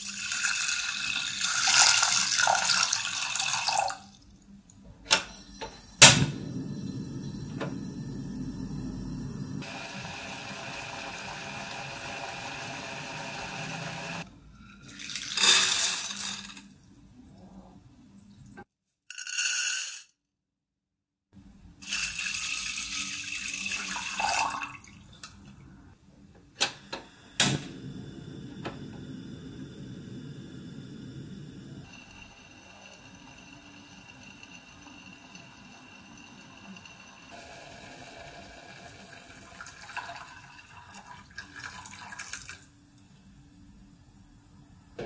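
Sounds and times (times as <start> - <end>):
water running and pouring: 0.0 - 4.1, 22.0 - 25.4, 37.4 - 42.7
beans clattering into saucepan: 15.0 - 16.6.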